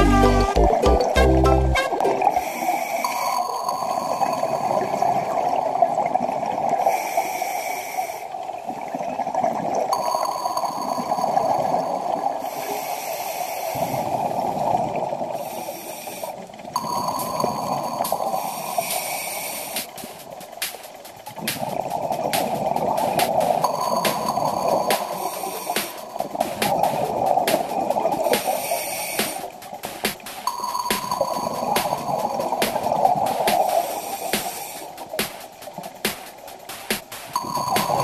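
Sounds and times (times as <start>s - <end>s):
rush of bubbles: 16.5s - 36.0s
diver breathing through regulator: 28.3s - 29.6s.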